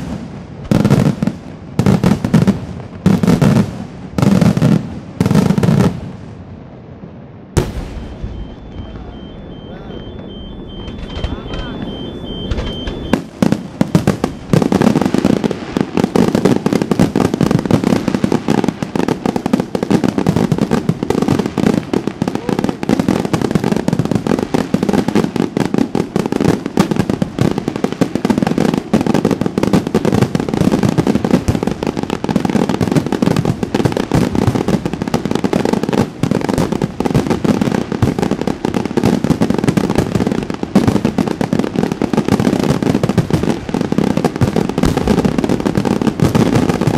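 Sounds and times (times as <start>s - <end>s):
fireworks shells bursting: 7.6s - 17.9s.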